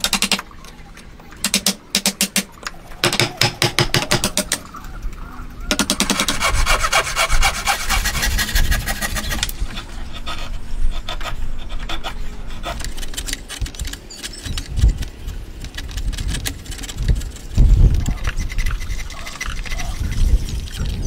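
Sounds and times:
file rasping on wood: 0:05.9 - 0:09.4.

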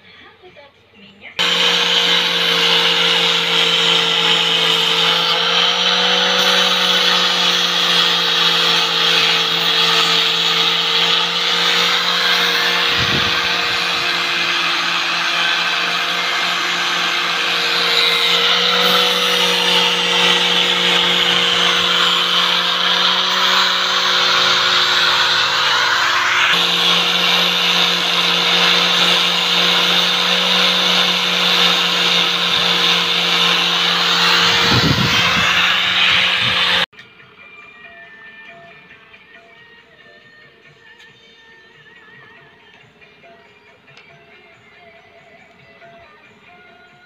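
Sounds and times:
angle grinder sanding bamboo: 0:01.4 - 0:36.9.

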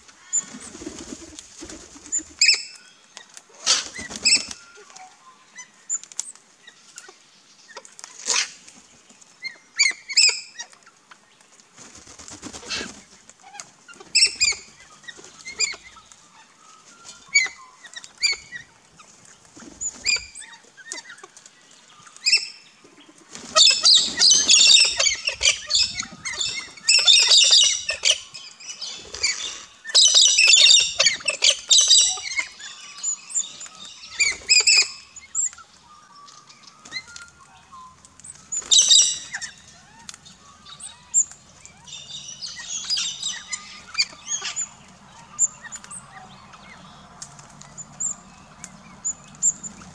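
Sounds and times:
birds calling: 0:00.0 - 0:49.9
birds squawking chatter: 0:00.0 - 0:49.9
wings flapping: 0:00.4 - 0:02.5, 0:03.6 - 0:04.7, 0:11.5 - 0:16.1, 0:18.0 - 0:20.4, 0:22.9 - 0:28.1.

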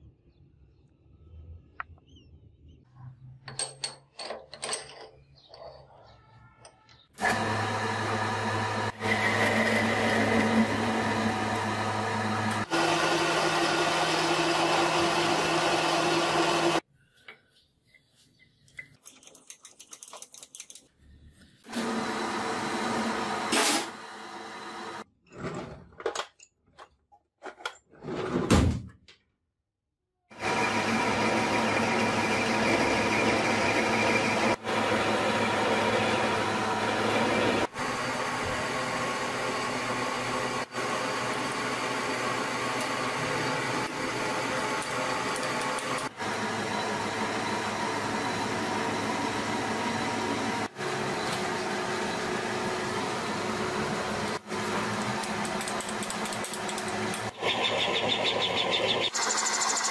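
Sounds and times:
power tool motor running: 0:07.2 - 0:16.8, 0:21.7 - 0:25.0, 0:30.3 - 0:59.9.

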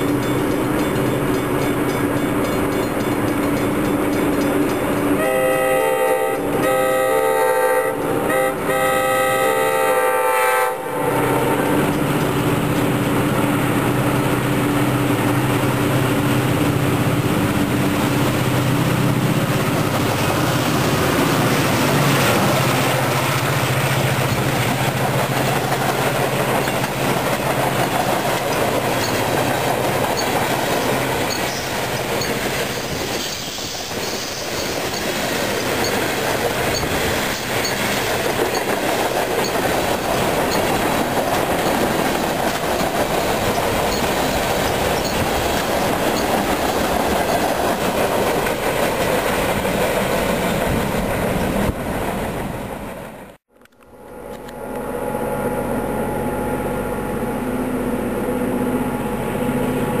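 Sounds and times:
train wheels on rail: 0:00.0 - 0:54.9
engine drone with held tones: 0:53.5 - 1:00.0.

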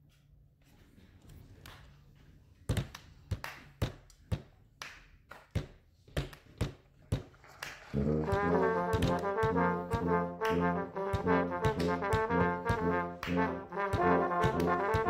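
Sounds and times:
sharp count-in taps: 0:08.3 - 0:15.0.

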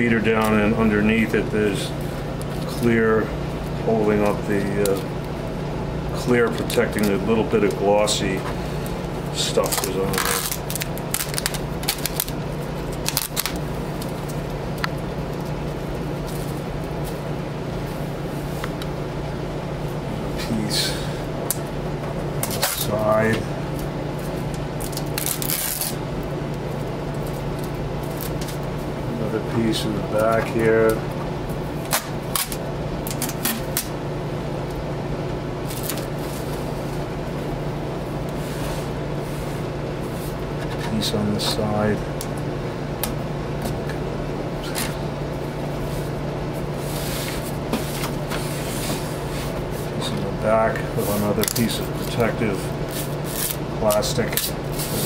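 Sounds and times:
steady low hum: 0:00.0 - 0:55.0
plastic film crackling being peeled: 0:09.4 - 0:14.4, 0:24.5 - 0:26.0, 0:27.2 - 0:28.7.

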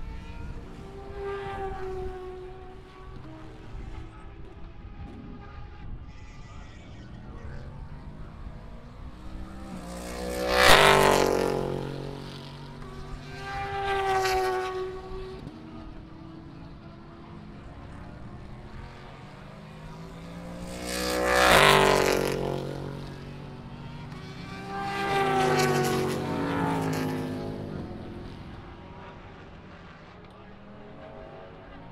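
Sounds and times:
race cars passing at speed: 0:00.0 - 0:06.1, 0:06.8 - 0:31.9
distant engine noise: 0:00.0 - 0:31.9.

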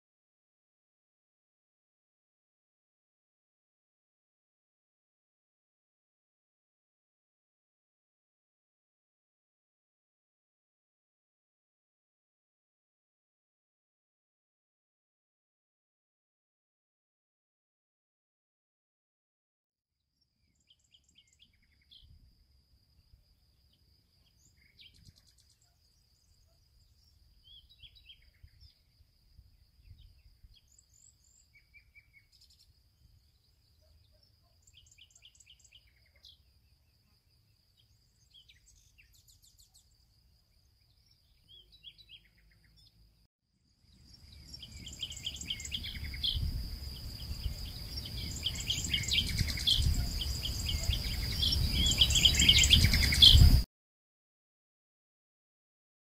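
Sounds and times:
small birds chirping: 0:20.2 - 0:53.6.

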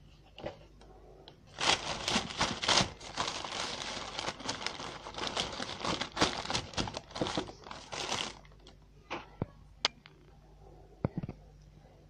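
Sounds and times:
baking paper crinkling: 0:01.5 - 0:08.8.

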